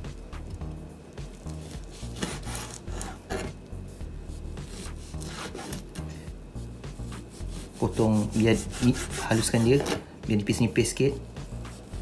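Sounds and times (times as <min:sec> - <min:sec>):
knife sawing through meat: 0:01.5 - 0:03.6, 0:04.3 - 0:05.9, 0:07.0 - 0:10.1.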